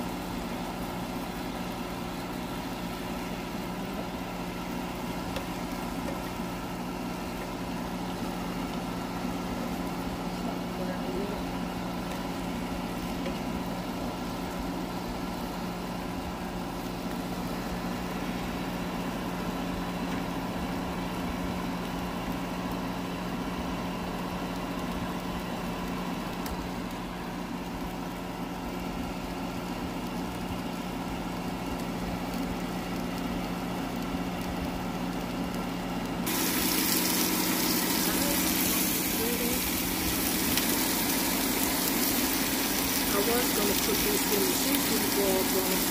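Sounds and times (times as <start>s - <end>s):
air fryer fan humming: 0.0s - 45.9s
running water: 36.3s - 45.9s.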